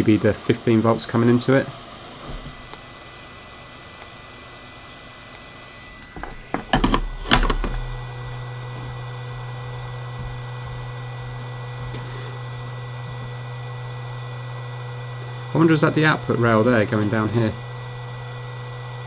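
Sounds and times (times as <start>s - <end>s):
low electric hum: 0.0s - 19.0s.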